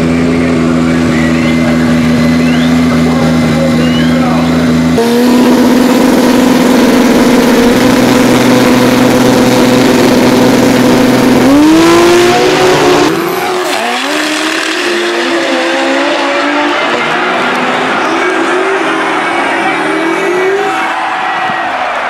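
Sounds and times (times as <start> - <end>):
drag racing engines revving: 0.0 - 21.2.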